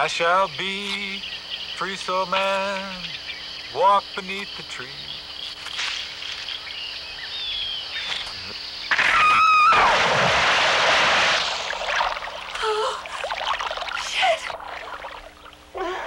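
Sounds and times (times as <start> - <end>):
insects chirping: 0.0 - 16.0
person crying out: 9.1 - 9.9, 12.6 - 13.1, 15.8 - 16.0
person splashing into water: 9.7 - 15.3.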